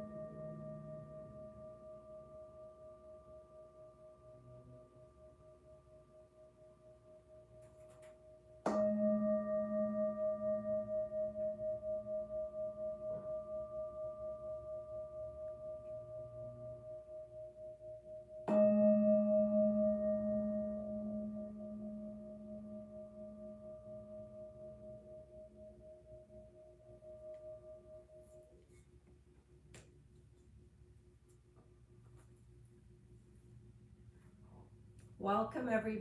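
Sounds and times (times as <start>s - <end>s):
singing bowl ringing: 0.0s - 28.8s
mallet striking singing bowl: 8.6s - 11.8s, 18.4s - 25.7s.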